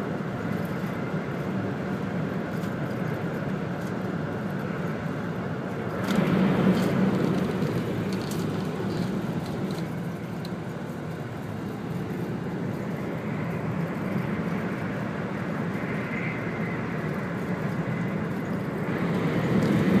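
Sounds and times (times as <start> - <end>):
train cabin rumble: 5.7 - 13.0.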